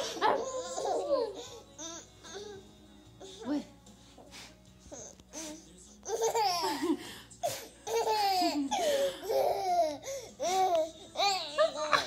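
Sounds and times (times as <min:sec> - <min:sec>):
baby laughing: 0:00.0 - 0:02.0, 0:06.0 - 0:12.0.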